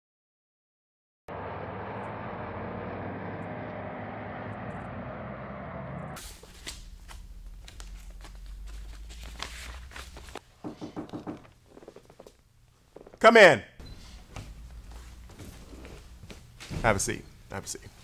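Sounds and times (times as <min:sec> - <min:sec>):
low hum: 0:01.3 - 0:06.2
street traffic noise: 0:01.3 - 0:06.2
papers rustling and flipping: 0:06.2 - 0:10.5.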